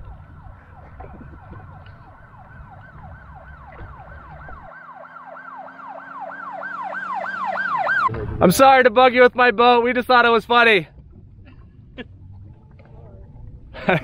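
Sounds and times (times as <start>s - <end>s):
low rumble: 0.0s - 4.7s
yelp siren wailing: 0.0s - 8.1s.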